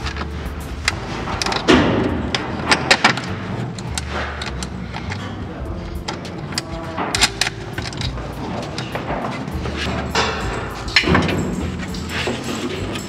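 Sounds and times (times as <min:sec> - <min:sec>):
plastic connectors clicking: 0:00.0 - 0:13.0
steady low hum: 0:00.0 - 0:13.0.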